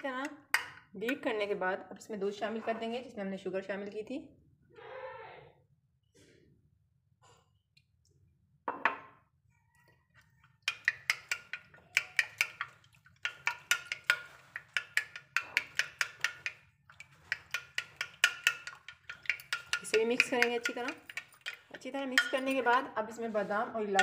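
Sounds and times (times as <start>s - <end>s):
utensil clinking against glass dish: 10.6s - 22.9s.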